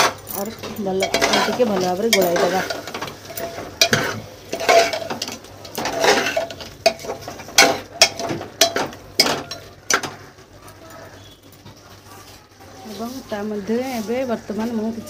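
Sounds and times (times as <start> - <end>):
metal clinks: 0.0 - 5.3
spoon scraping pot: 0.0 - 10.3.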